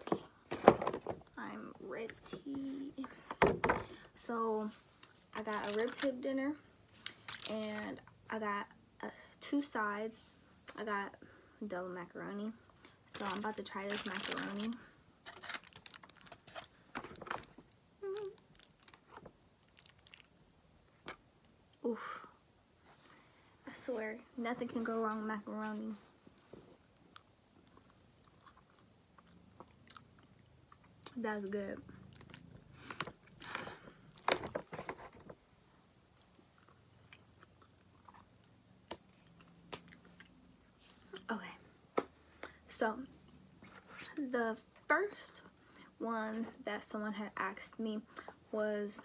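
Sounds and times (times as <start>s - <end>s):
person chewing food: 15.6s - 21.8s, 26.8s - 31.1s, 32.0s - 34.2s, 36.0s - 40.4s
person humming: 18.0s - 18.4s.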